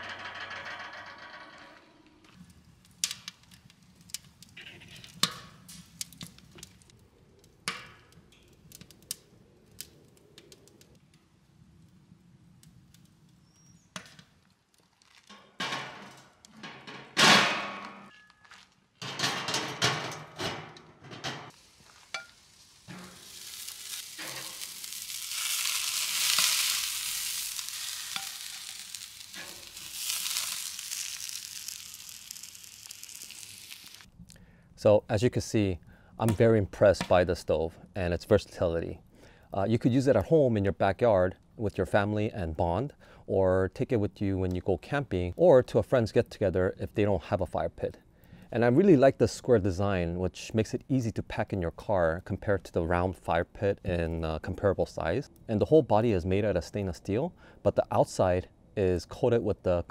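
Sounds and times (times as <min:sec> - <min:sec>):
wood fire crackling and popping: 0:02.2 - 0:16.6, 0:21.5 - 0:34.4
metal grill grate clattering: 0:15.3 - 0:18.2, 0:19.0 - 0:21.5, 0:22.9 - 0:26.8, 0:27.4 - 0:31.7
meat sizzling on grill: 0:21.5 - 0:34.1.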